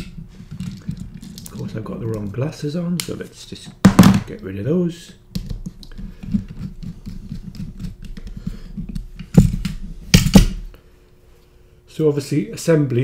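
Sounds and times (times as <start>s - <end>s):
louder knocks: 3.8s - 4.3s.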